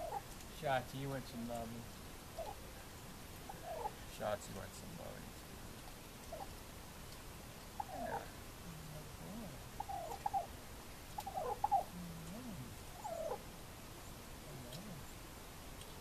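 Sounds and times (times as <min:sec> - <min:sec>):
turkey low hums: 0:00.0 - 0:00.3, 0:02.3 - 0:04.1, 0:06.2 - 0:06.6, 0:07.6 - 0:15.4
turkey purring and chirping: 0:00.0 - 0:00.4, 0:02.3 - 0:04.0, 0:06.1 - 0:06.6, 0:07.6 - 0:15.2.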